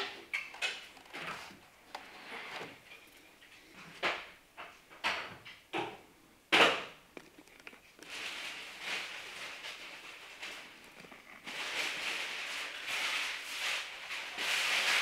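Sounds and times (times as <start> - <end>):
tape rustling: 0.0 - 3.6, 7.1 - 15.0.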